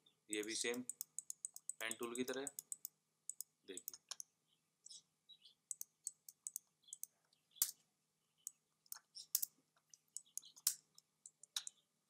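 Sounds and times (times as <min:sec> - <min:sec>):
computer mouse clicking: 0:00.4 - 0:04.3, 0:05.7 - 0:07.7, 0:08.4 - 0:11.8.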